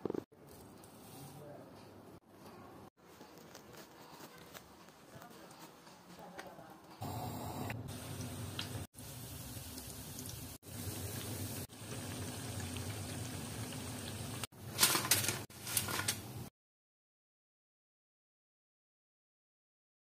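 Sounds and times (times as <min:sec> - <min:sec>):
fritters sizzling in hot oil: 0:07.9 - 0:14.5.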